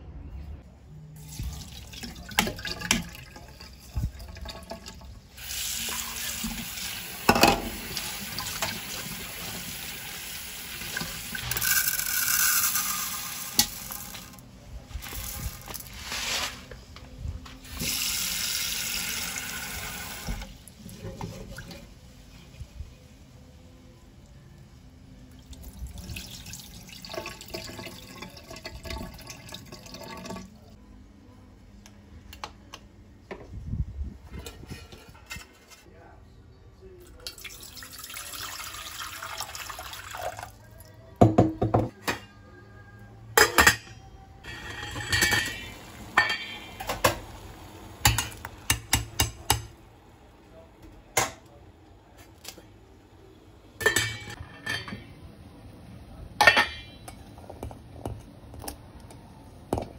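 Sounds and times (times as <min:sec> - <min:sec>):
water pouring into saucepan: 0:01.2 - 0:14.4, 0:25.4 - 0:30.7, 0:37.2 - 0:40.6
pots and utensils clinking: 0:05.8 - 0:09.3, 0:10.8 - 0:14.4, 0:43.4 - 0:47.4, 0:48.0 - 0:49.7, 0:53.8 - 0:55.2, 0:56.4 - 0:58.2.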